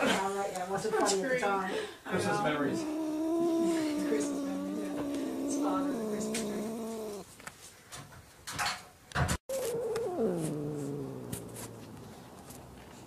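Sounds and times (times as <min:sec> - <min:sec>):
cat yowling into low growl: 0:02.3 - 0:07.2, 0:09.5 - 0:12.0
faint clicks: 0:03.4 - 0:07.2.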